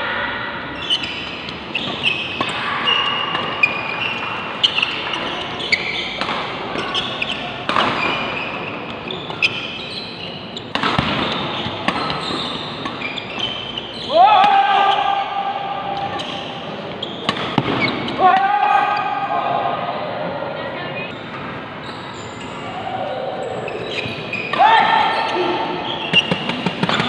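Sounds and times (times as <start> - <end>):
shoes squeaking on court floor: 0.8 - 14.2, 16.0 - 18.2, 21.1 - 22.7, 23.4 - 27.0
racket hitting shuttlecock: 1.2 - 9.7, 10.7 - 13.8, 17.2 - 18.4.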